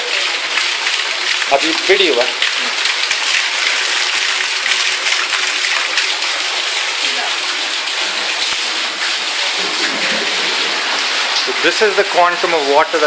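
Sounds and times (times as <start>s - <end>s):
runoff water gushing and splashing: 0.0s - 13.0s
heavy rain: 8.1s - 13.0s.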